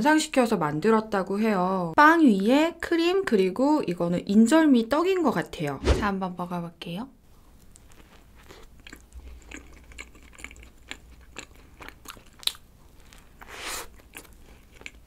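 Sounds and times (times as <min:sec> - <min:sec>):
biting and chewing bread: 0:07.6 - 0:15.0.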